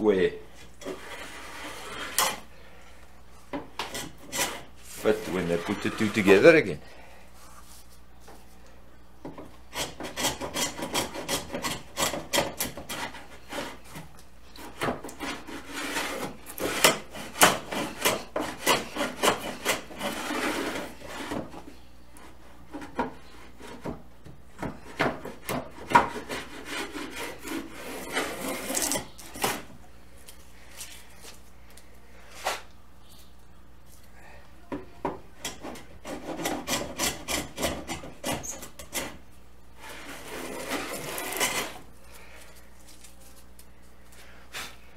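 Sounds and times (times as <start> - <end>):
hand plane rasping on wood: 0.8 - 2.4, 3.8 - 6.5, 9.7 - 14.0, 14.7 - 21.6, 24.6 - 29.1, 35.4 - 39.2, 39.8 - 41.8.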